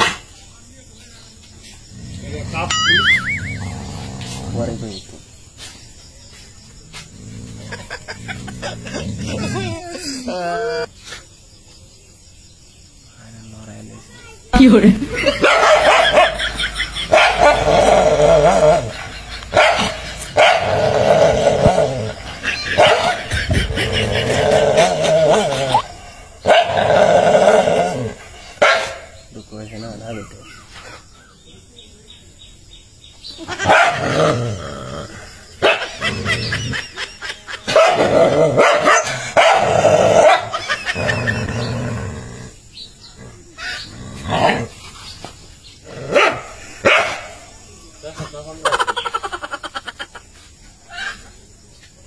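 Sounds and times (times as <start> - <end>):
dog barking and snarling: 7.0 - 10.2, 15.1 - 29.2, 33.5 - 37.0, 37.6 - 42.6, 43.2 - 44.8, 45.8 - 47.6.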